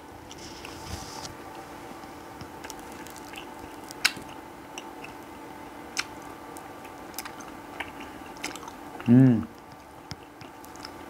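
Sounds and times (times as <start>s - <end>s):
mouth eating sounds: 2.6s - 5.2s, 5.9s - 11.0s.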